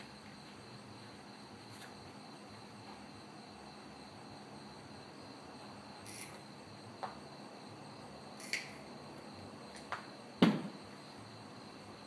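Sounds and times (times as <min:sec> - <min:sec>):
knock on workbench: 0:10.4 - 0:10.8.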